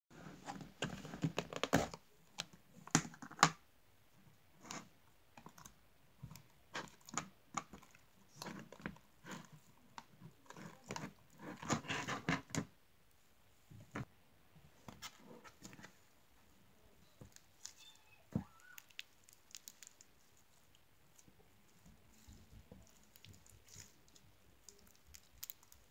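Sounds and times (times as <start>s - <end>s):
slime crackling: 17.3s - 25.9s.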